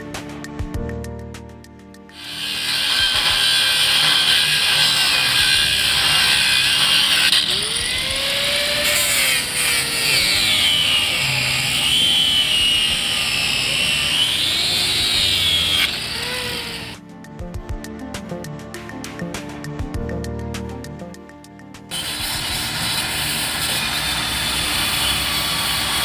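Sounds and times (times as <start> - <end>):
angle grinder grinding steel: 2.1 - 17.0, 21.9 - 26.0.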